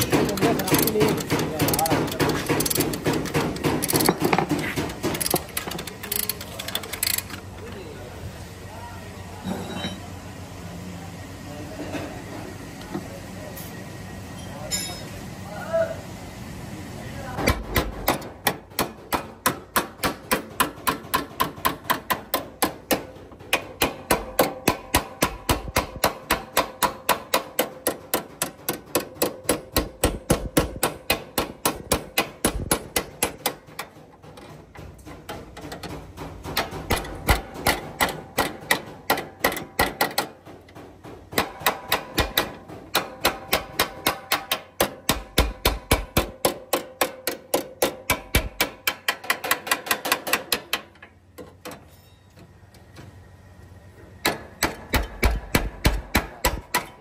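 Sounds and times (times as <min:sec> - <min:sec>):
hammer beating sheet steel: 0:00.0 - 0:05.2, 0:17.4 - 0:50.9, 0:54.2 - 0:57.0.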